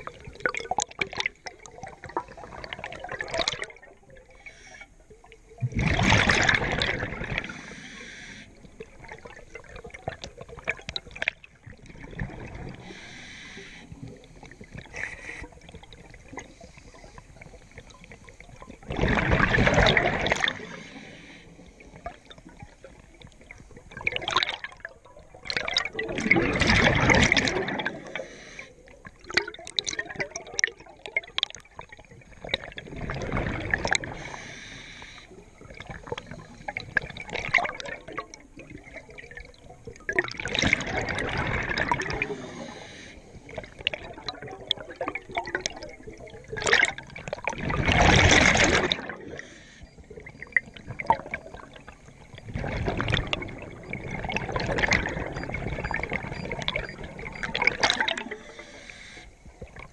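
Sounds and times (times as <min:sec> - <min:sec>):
exhaled bubbles rushing: 0:00.0 - 0:04.6, 0:05.6 - 0:28.3, 0:29.0 - 0:34.5, 0:35.3 - 0:59.9
scuba regulator breathing: 0:04.4 - 0:05.0, 0:07.4 - 0:08.7, 0:12.7 - 0:15.7, 0:20.4 - 0:22.0, 0:27.9 - 0:28.8, 0:34.0 - 0:35.4, 0:42.2 - 0:43.6, 0:49.2 - 0:50.1, 0:58.2 - 0:59.4.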